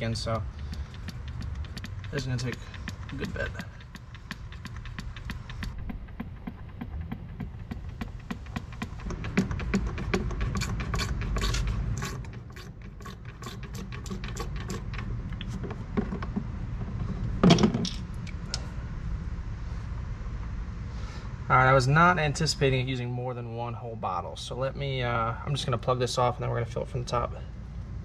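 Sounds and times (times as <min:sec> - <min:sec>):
hand pump clicking: 0:00.4 - 0:05.9, 0:07.6 - 0:17.1.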